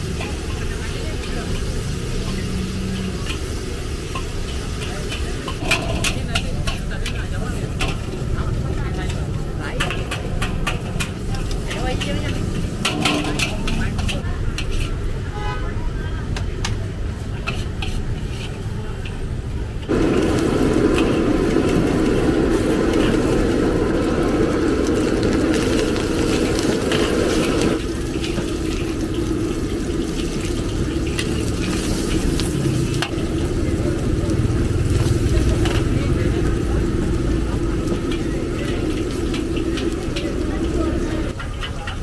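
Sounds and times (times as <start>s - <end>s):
food sizzling in a wok: 0.0s - 42.0s
metal spatula scraping a wok: 0.1s - 15.6s, 17.2s - 19.4s, 25.7s - 33.5s
steady low rumble: 19.1s - 41.4s.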